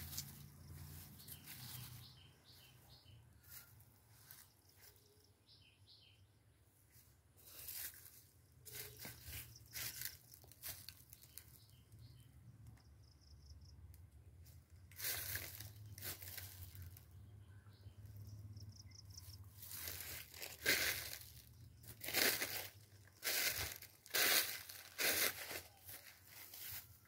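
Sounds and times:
brushing through plants: 0.0 - 2.3, 7.4 - 11.4, 14.9 - 17.0, 19.6 - 27.0
footsteps crunching on dry leaves: 0.0 - 4.9, 7.4 - 11.6, 14.9 - 17.0, 19.5 - 27.0.

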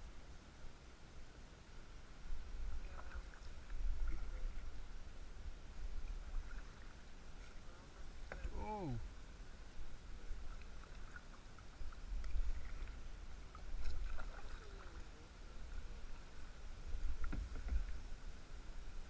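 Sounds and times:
paddle splashing in water: 2.6 - 4.8, 5.9 - 9.0, 10.2 - 16.3.

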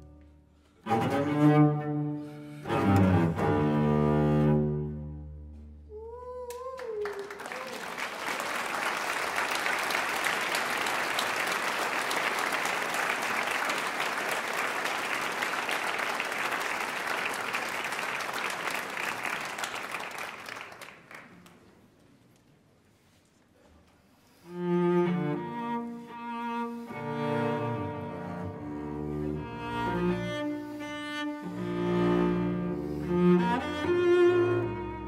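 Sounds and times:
cello and double bass chord: 0.9 - 5.5, 24.6 - 35.0
audience applauding: 6.5 - 21.8.

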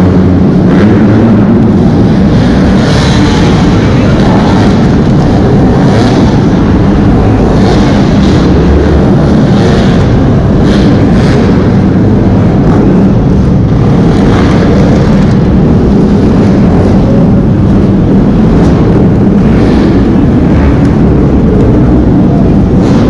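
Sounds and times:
dirt bike engines revving: 0.0 - 23.0.

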